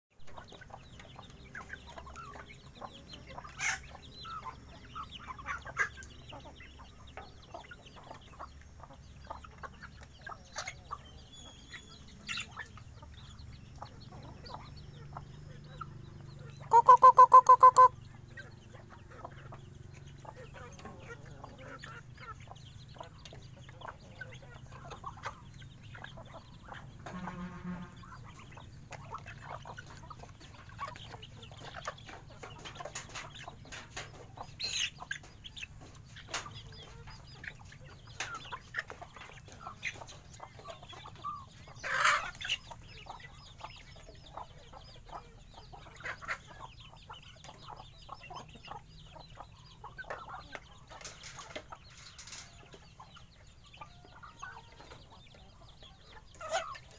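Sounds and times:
chickens clucking: 0.1s - 56.9s
drawn-out bird call: 0.3s - 52.8s
loud squawk: 16.6s - 17.9s.

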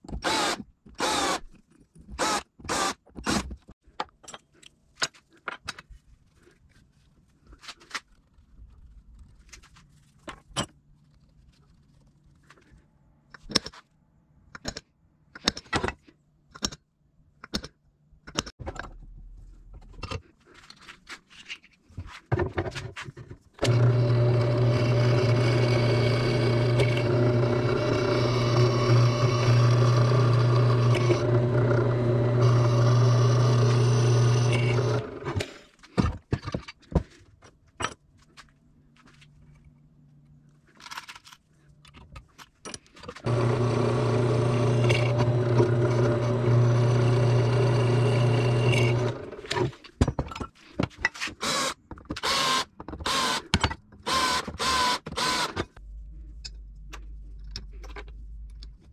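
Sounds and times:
electric power tool running: 23.6s - 35.5s, 43.2s - 49.6s, 54.1s - 55.6s.

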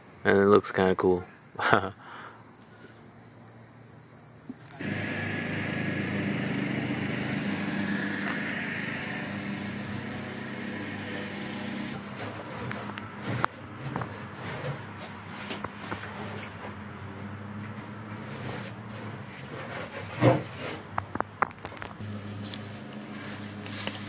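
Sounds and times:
crickets chirping: 0.0s - 11.6s, 12.8s - 22.0s
motor droning with hum: 4.6s - 13.4s, 21.6s - 24.0s.

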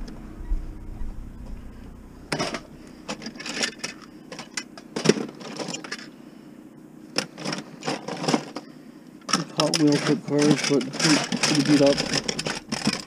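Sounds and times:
toy cars clinking in a box: 7.2s - 8.7s, 9.3s - 13.0s.

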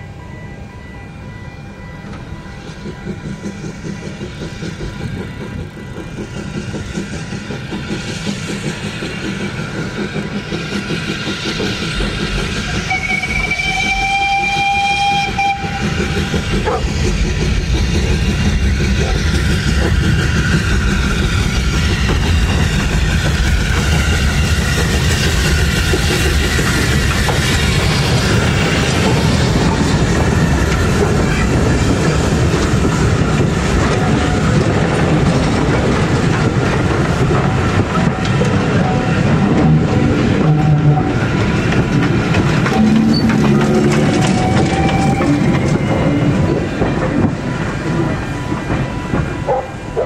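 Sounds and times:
steam train approaching: 0.0s - 50.0s
locomotive whistle blowing: 12.6s - 16.8s, 42.7s - 46.5s.

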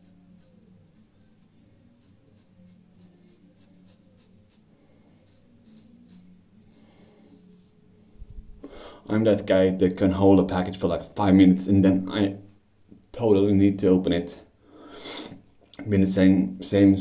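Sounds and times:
razor scraping stubble: 0.0s - 9.5s.

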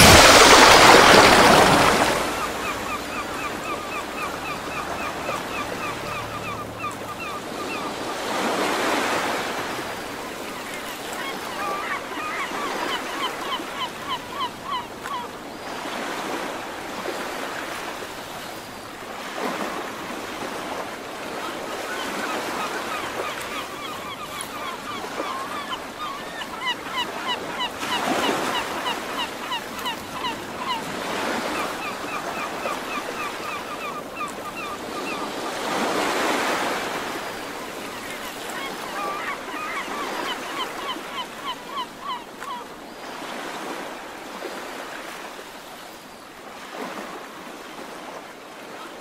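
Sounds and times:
sea waves washing onto shore: 0.0s - 48.9s
bird calling: 0.2s - 16.4s, 21.3s - 43.9s.

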